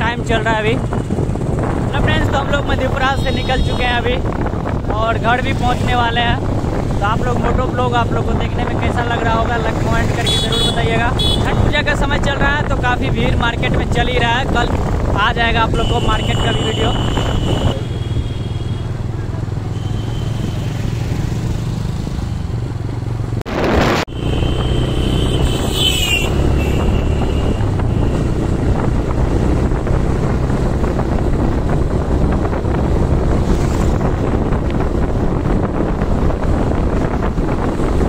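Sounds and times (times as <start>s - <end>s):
wind rushing over microphone: 0.0s - 38.0s
motorcycle engine accelerating: 18.8s - 38.0s.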